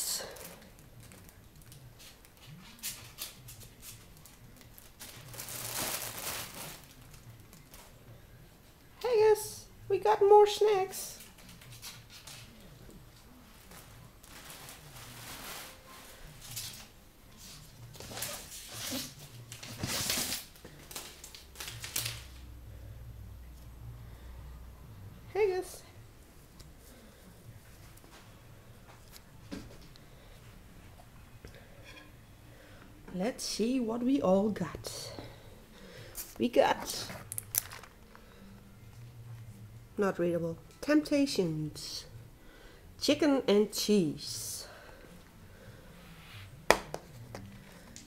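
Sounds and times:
packaging rustling: 2.9 - 7.9, 13.7 - 15.8, 37.2 - 38.2.

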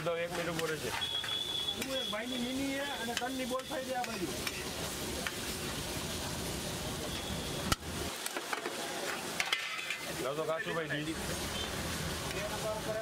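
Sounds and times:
gravy sizzling in a pan: 0.0 - 13.0
metal spatula stirring and scraping: 0.2 - 5.8, 9.0 - 10.2.

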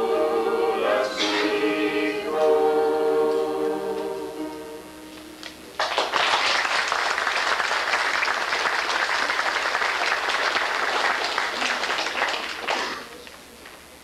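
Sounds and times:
audience applauding: 5.8 - 13.3.

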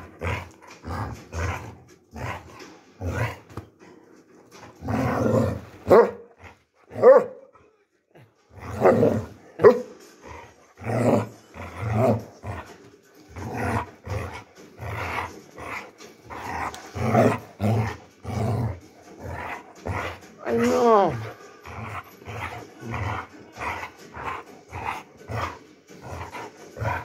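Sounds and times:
dog play-growling: 0.0 - 7.1, 8.1 - 27.0
dog barks: 5.8 - 6.3, 6.9 - 7.5, 8.8 - 9.9.

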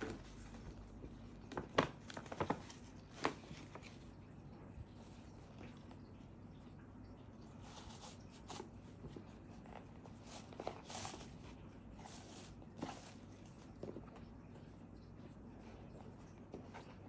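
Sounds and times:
ribbon rustling on cardboard box: 7.7 - 14.2.

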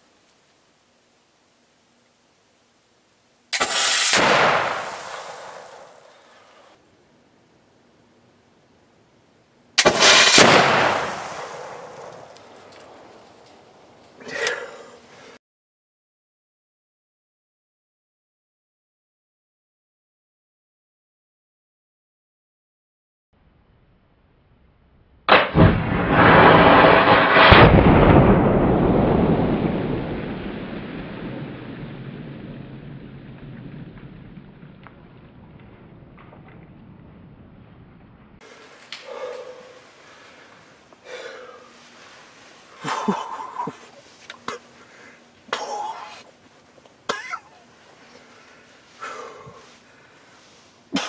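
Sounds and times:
flintlock gun firing: 3.6 - 5.9, 9.8 - 13.0
gunshot echo: 3.6 - 6.4, 9.8 - 13.0, 25.3 - 31.7
rolling rumble: 9.9 - 14.3, 23.4 - 51.0.

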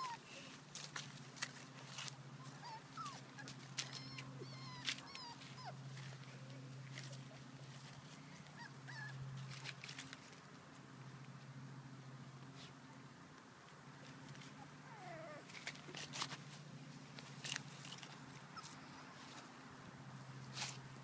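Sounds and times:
puppies yipping and whining: 0.0 - 0.2, 2.3 - 6.5, 8.4 - 9.8, 14.2 - 15.8, 17.9 - 19.2
dry leaves rustling: 0.1 - 8.6, 9.4 - 10.9, 15.4 - 21.0.

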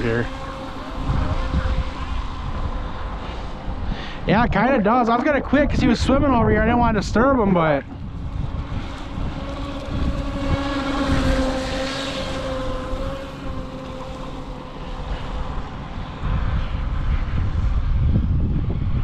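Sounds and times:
electric motor whining: 0.0 - 3.8, 7.8 - 17.0
wind on microphone: 0.0 - 19.0.

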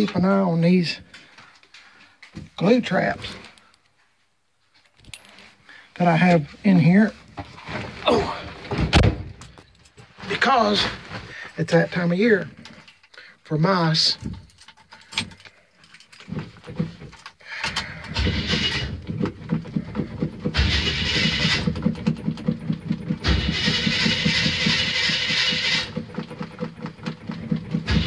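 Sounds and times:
engine cranking and chugging: 17.6 - 28.0.

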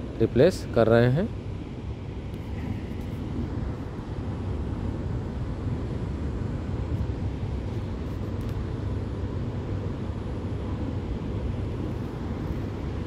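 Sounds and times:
low machinery rumble: 0.0 - 13.0.

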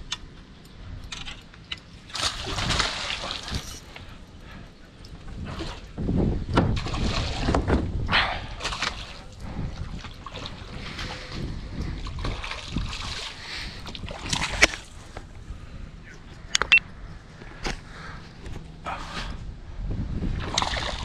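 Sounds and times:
water lapping around kayak hull: 2.0 - 16.5, 20.2 - 21.0.

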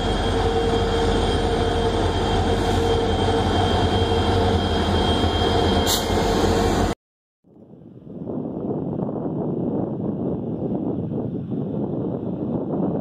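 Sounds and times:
diesel locomotive engine rumble: 0.0 - 7.0.

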